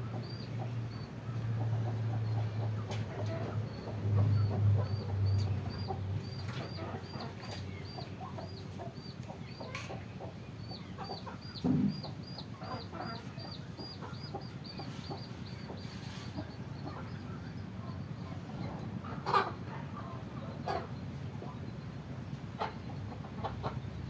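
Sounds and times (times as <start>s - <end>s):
chickens clucking: 0.0s - 24.0s
dull thump: 11.6s - 12.1s.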